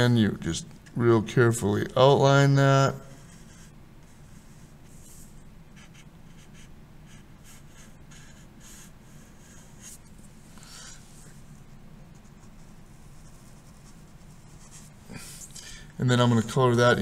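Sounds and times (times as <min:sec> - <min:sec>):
low room hum: 0:00.0 - 0:17.0
marker scratching on paper: 0:03.1 - 0:11.4, 0:12.2 - 0:15.0.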